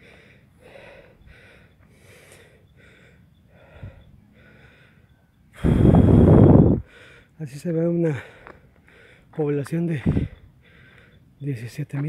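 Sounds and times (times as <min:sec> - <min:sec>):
person breathing heavily: 0:00.0 - 0:07.4, 0:08.1 - 0:09.4, 0:10.0 - 0:11.2
wind noise on microphone: 0:05.6 - 0:06.9, 0:10.0 - 0:10.5.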